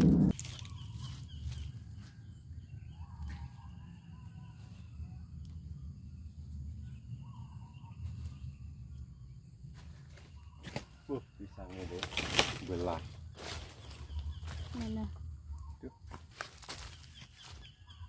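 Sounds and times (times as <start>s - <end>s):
low steady rumble: 0.0s - 0.4s
faint birds calling: 0.0s - 5.0s, 6.6s - 18.0s
rustles and snaps of chili bush: 0.3s - 2.0s, 11.7s - 15.0s.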